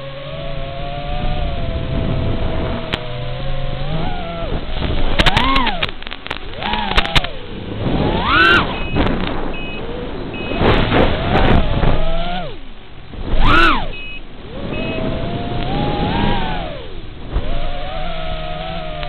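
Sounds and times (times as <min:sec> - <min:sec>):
quadcopter motors whining: 0:00.0 - 0:07.5, 0:08.1 - 0:12.6, 0:13.3 - 0:19.0
sharp crackles: 0:02.5 - 0:19.0
short high beeps: 0:08.4 - 0:09.8, 0:10.4 - 0:10.7, 0:13.6 - 0:15.1.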